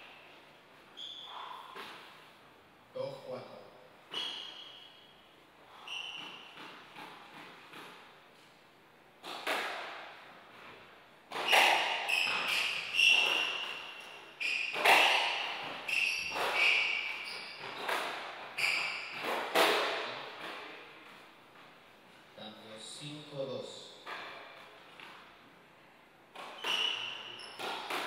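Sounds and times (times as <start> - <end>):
shoes squeaking on wooden floor: 0.9 - 2.1, 4.1 - 5.1, 5.7 - 7.8, 10.6 - 21.6, 26.4 - 28.0
squash ball cracks: 9.2 - 10.2, 14.7 - 18.5, 27.6 - 28.0.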